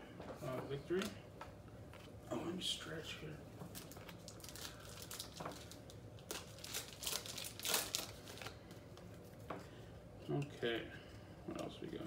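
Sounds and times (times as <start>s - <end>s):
wrapper crinkling: 3.6s - 9.1s.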